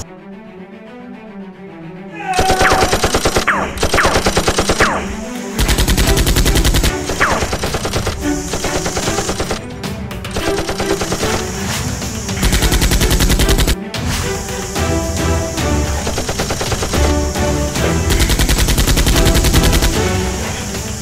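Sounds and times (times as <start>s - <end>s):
background music: 0.0s - 21.0s
automatic gunfire: 2.4s - 9.6s, 10.4s - 11.7s, 12.3s - 13.8s, 15.9s - 20.4s.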